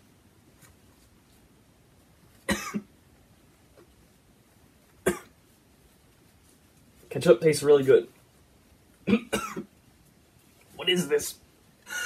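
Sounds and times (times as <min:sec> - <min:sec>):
person coughing: 0:02.5 - 0:02.9, 0:05.0 - 0:05.3, 0:09.0 - 0:09.7.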